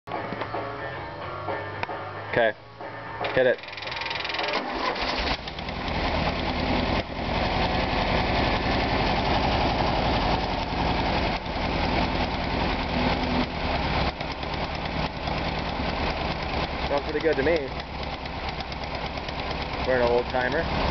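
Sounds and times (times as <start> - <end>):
starter motor cranking: 3.6 - 7.0, 10.5 - 20.9
car engine running steadily: 4.9 - 20.9.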